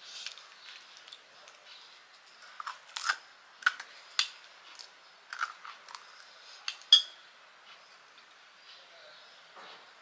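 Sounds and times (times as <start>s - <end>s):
crisp shells crunching when chewed: 2.4s - 6.9s.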